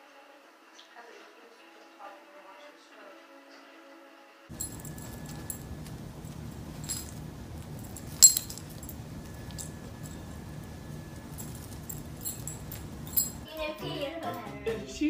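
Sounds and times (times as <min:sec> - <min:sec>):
background hiss: 0:00.0 - 0:15.0
scuffle clicks: 0:04.5 - 0:13.4
collar tag jingling: 0:04.5 - 0:13.5.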